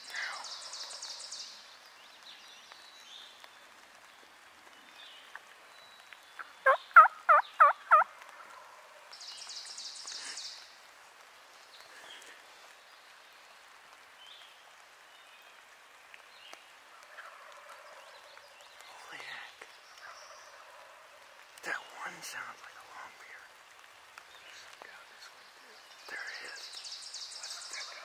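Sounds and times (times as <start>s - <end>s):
turkey gobbling: 6.6s - 8.6s, 17.1s - 18.0s.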